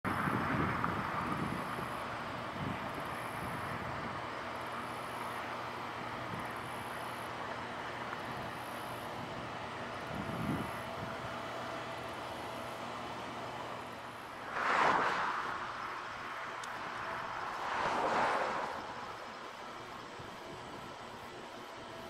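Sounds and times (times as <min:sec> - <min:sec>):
ship engines droning: 0:00.1 - 0:22.0
water rushing past ship: 0:14.4 - 0:15.8.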